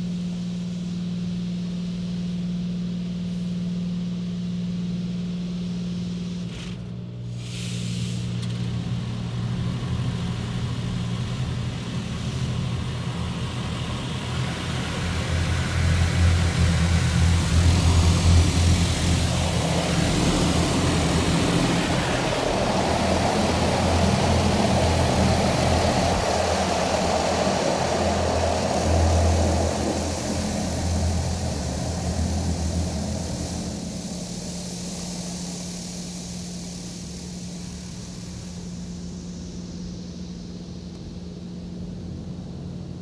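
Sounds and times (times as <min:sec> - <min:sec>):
steady low hum: 0:00.0 - 0:43.0
water jets hissing on car: 0:07.4 - 0:40.5
pulsing low rumble: 0:08.9 - 0:43.0.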